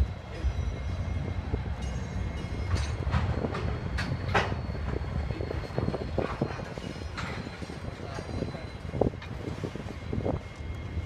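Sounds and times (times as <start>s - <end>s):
diesel locomotive rumble: 0.0s - 11.0s
wagons clanking and knocking: 2.2s - 9.4s.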